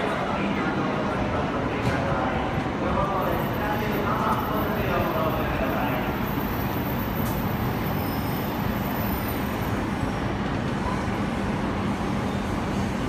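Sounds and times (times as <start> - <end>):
standing train rumbling: 0.0 - 13.0.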